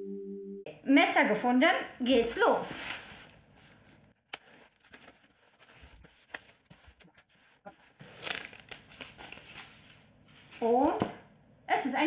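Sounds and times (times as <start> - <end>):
knife slitting packing tape: 8.0 - 9.7.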